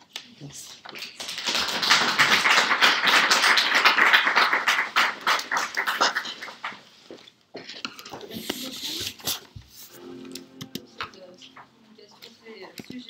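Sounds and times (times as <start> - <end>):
audience applauding: 1.0 - 6.9.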